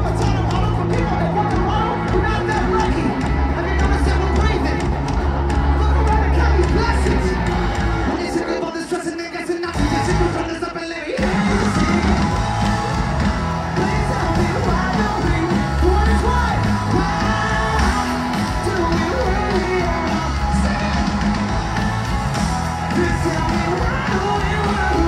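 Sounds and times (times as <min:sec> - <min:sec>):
heavy bass: 0:00.0 - 0:08.3, 0:09.8 - 0:10.6, 0:11.2 - 0:25.0
loud rock music: 0:00.0 - 0:25.0
person singing: 0:09.8 - 0:25.0.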